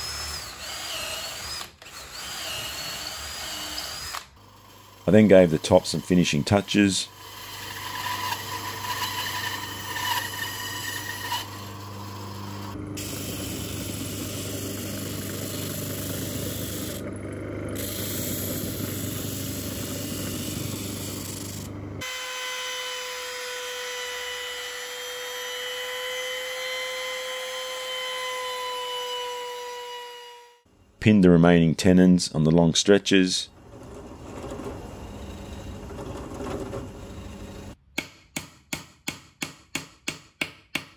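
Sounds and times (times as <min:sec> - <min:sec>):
bandsaw cutting wood: 0:00.0 - 0:17.0
disc sander sanding wood: 0:33.6 - 0:37.8
router high whine: 0:33.8 - 0:37.8.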